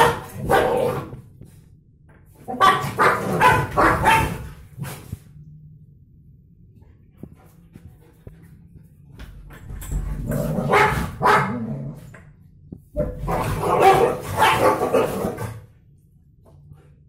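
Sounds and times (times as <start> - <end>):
dogs barking and snarling: 0.0 - 1.3, 2.4 - 5.2, 10.2 - 12.1, 13.0 - 15.7.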